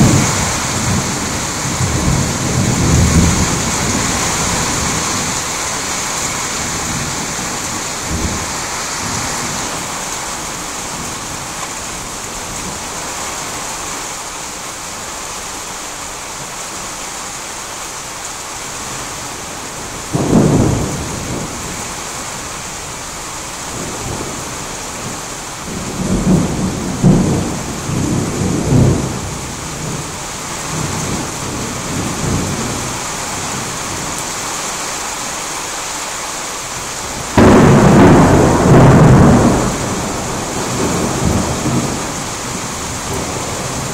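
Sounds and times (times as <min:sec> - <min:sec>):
loud thunder clap: 0:00.0 - 0:09.9, 0:20.2 - 0:21.8, 0:37.4 - 0:43.9
rolling rumble of thunder: 0:00.0 - 0:13.5, 0:19.8 - 0:34.2, 0:37.1 - 0:43.9
rain falling steadily: 0:00.0 - 0:43.9.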